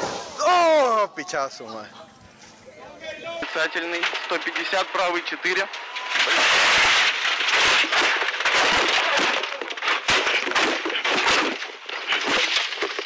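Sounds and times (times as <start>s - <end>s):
car crashing through trees: 3.4s - 13.0s.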